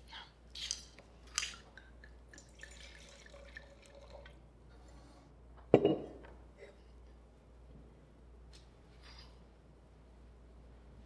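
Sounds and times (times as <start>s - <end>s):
liquid trickle and drip: 0.6s - 4.4s
wine pouring into glass: 2.3s - 4.4s.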